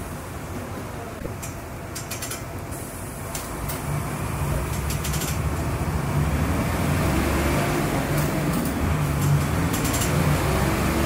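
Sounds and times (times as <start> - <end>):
bus diesel engine revving: 2.9 - 11.0.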